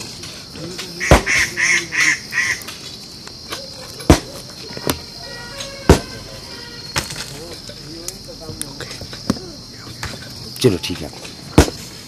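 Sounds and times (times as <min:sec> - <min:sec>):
short honking calls: 0:04.7 - 0:07.1.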